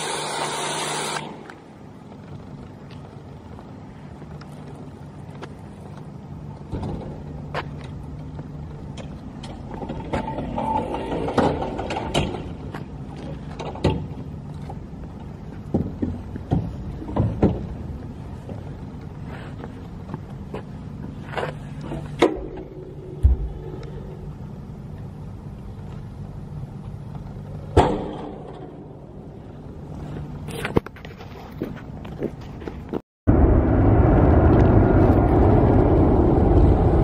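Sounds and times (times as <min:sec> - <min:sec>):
pressure washer humming: 0:00.0 - 0:01.6.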